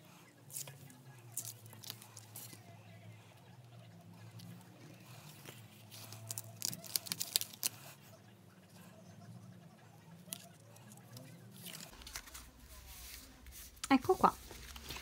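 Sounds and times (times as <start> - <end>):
faint low hum: 0.0 - 15.0
card stock rustling: 4.4 - 8.0, 10.9 - 15.0.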